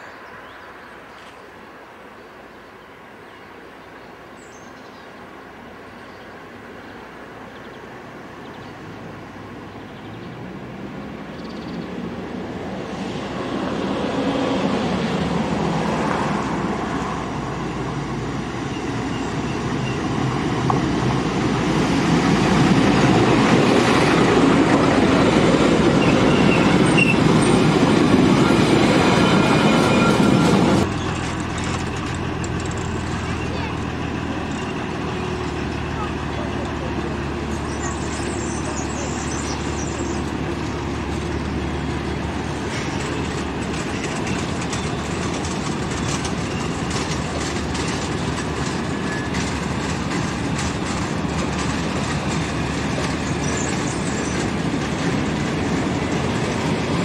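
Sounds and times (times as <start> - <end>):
diesel locomotive engine: 0.0 - 57.0
train wheels rumbling: 8.2 - 57.0
high wheel squeal: 25.9 - 27.6, 28.3 - 31.2, 48.5 - 49.6.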